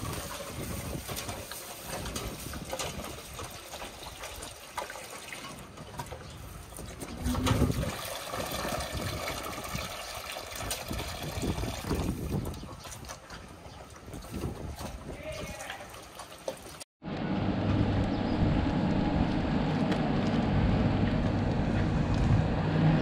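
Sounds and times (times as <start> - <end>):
milk trickling into a steel bowl: 7.6 - 13.0.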